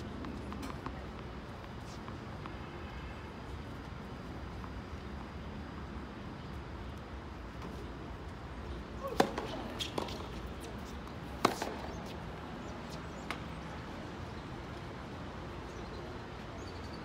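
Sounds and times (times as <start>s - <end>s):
ball bounces: 9.0s - 10.4s, 11.3s - 12.1s
tennis ball racket hits: 9.0s - 12.2s.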